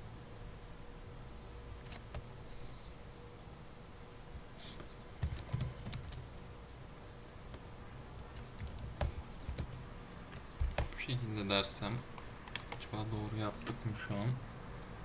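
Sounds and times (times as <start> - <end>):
computer keyboard typing: 1.8 - 2.2, 4.8 - 6.8, 7.5 - 11.0, 11.8 - 12.9.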